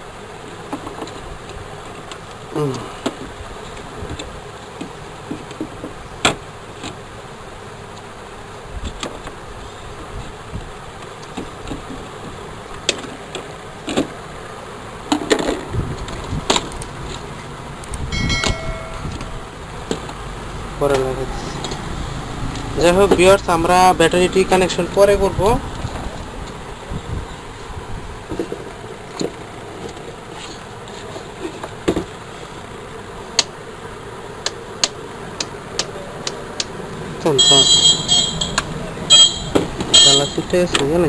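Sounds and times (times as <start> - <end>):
background buzz: 0.0 - 41.0
short electronic chime: 18.2 - 19.5.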